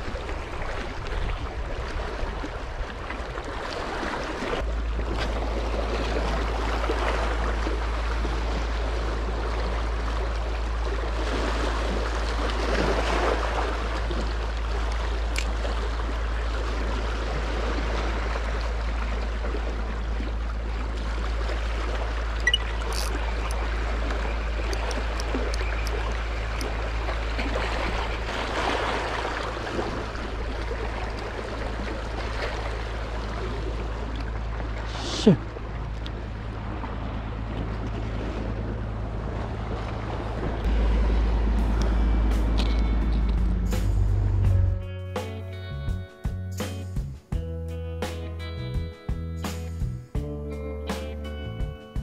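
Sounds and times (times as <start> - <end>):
waves washing against stones: 0.0 - 22.2, 22.8 - 35.6.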